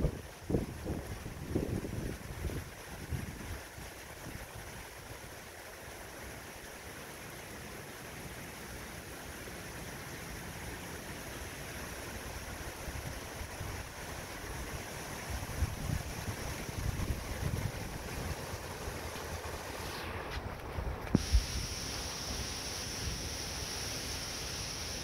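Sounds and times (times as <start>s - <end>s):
wind buffeting microphone: 0.0s - 3.6s, 15.3s - 18.7s
heavy rain hissing: 0.0s - 25.0s.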